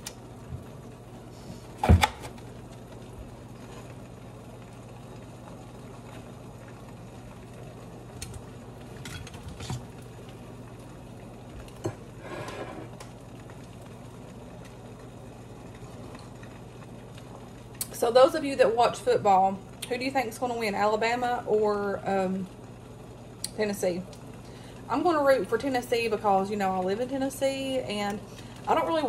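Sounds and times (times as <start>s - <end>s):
eggs sizzling in a skillet: 9.8s - 29.0s.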